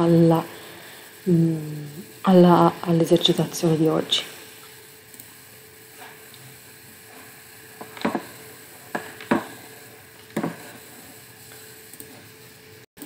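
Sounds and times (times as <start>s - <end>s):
faint hum and hiss: 0.0s - 12.9s.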